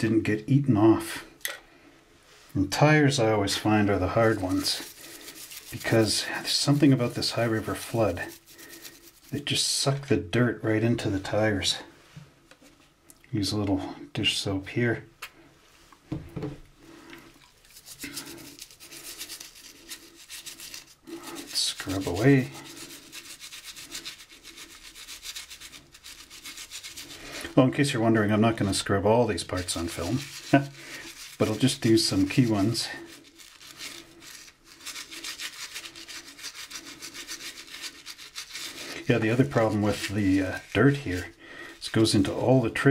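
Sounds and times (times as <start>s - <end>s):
toothbrush scrubbing rubber tire: 3.1s - 10.1s, 17.4s - 42.9s
brief thump: 16.1s - 16.6s.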